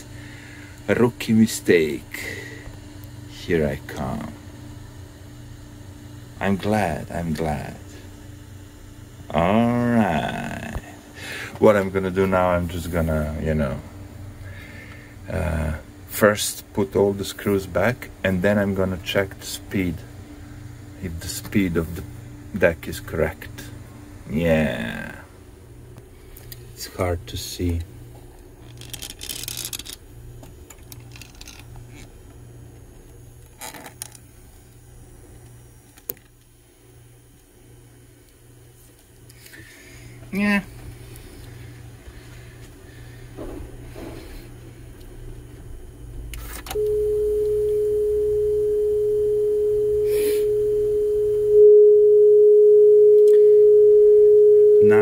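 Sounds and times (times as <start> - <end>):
steady test tone: 46.6 - 55.0.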